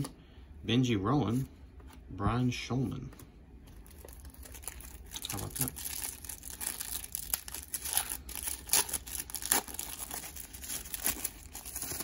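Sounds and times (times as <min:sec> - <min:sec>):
plastic wrapper crinkling: 0:03.7 - 0:12.0.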